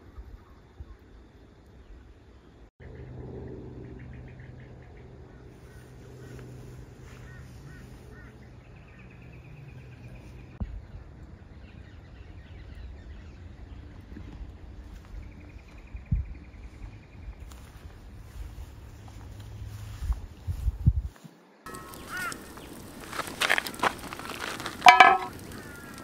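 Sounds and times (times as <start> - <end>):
low outdoor rumble: 0.8 - 21.1, 21.7 - 26.0.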